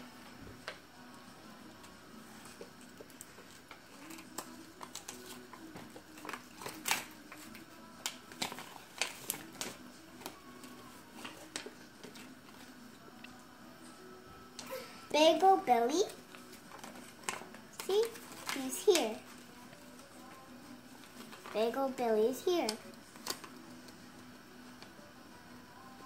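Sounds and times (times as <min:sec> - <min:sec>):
paper leaflet crinkling: 0:03.1 - 0:12.7.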